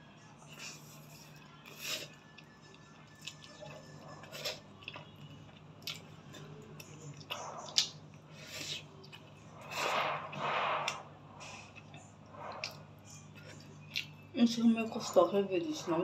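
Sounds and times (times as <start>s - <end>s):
chewing with wet mouth smacks: 1.6s - 9.8s, 11.7s - 14.2s.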